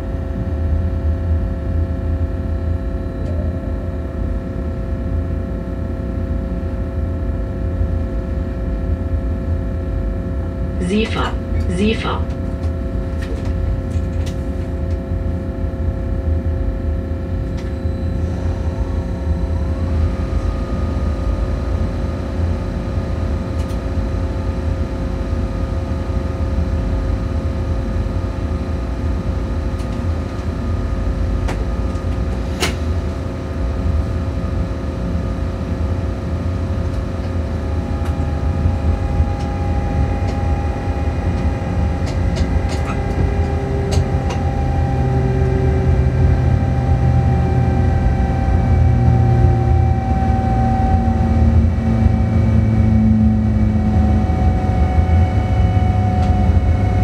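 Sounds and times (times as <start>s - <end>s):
train running gear rumble: 12.3s - 21.6s, 29.5s - 34.4s, 36.7s - 55.1s
steady whining tones: 36.9s - 57.0s.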